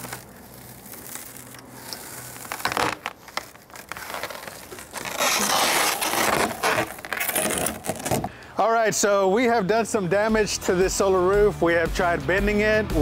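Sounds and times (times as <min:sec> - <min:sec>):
broken glass crackling: 0:00.0 - 0:08.3.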